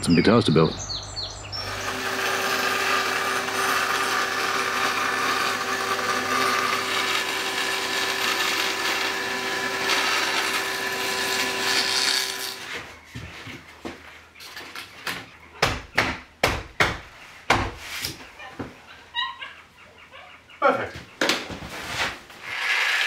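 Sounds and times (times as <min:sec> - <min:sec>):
bandsaw cutting wood: 0:01.6 - 0:12.8, 0:22.4 - 0:23.0.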